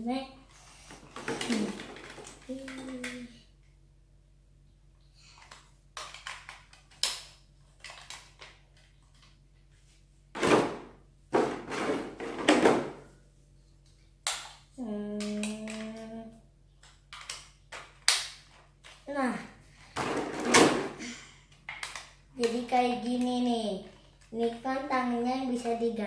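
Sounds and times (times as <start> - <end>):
plastic pieces clicking and knocking: 5.4 - 9.4, 16.8 - 19.0, 21.5 - 23.3.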